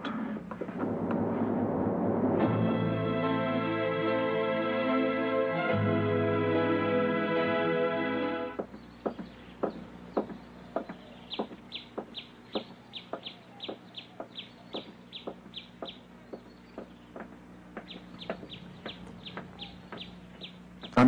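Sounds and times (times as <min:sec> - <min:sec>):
background music: 0:00.8 - 0:08.6
high falling bird chirps: 0:08.6 - 0:21.0.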